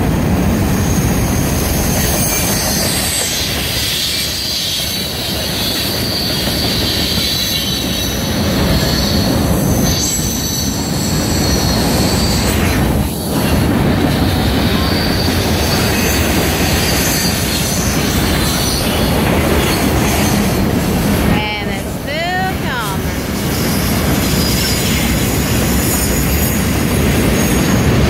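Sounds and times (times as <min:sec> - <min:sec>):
train wheels rumbling on rails: 0:00.0 - 0:28.0
wheels squealing: 0:01.9 - 0:13.6.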